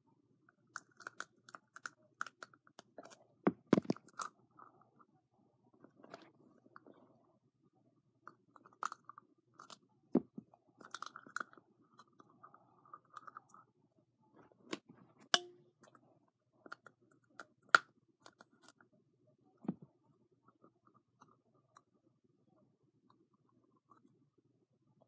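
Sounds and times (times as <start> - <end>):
plastic containers clicking and crinkling: 0.7 - 4.3.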